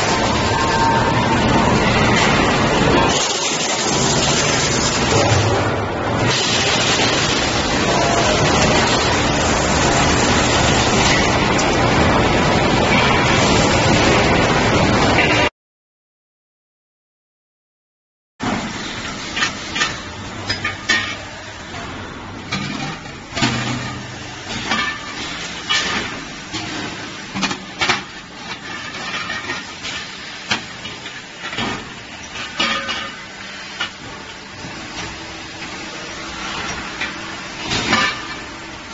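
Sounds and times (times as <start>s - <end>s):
machine hum: 0.0s - 15.4s.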